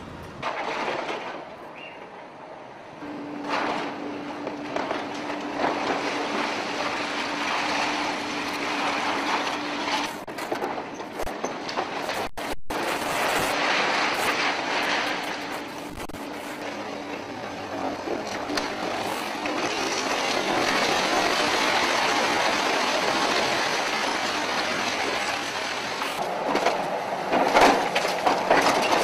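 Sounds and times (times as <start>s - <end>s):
concrete and debris crumbling: 0.4s - 1.5s, 3.4s - 29.0s
steady hum: 11.2s - 19.7s.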